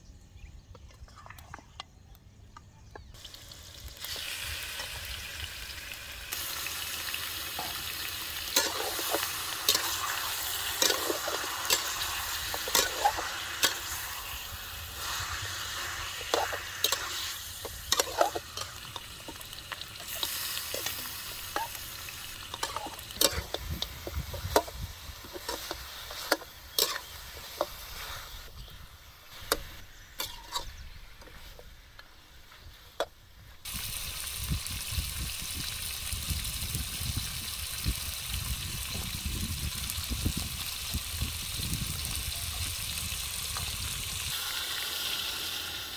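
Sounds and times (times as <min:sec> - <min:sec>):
meat sizzling in a wok: 0:03.2 - 0:30.6, 0:33.6 - 0:45.9
metal spatula scraping a wok: 0:08.5 - 0:14.3, 0:14.9 - 0:19.1, 0:22.5 - 0:24.7, 0:25.3 - 0:28.5, 0:29.3 - 0:30.8.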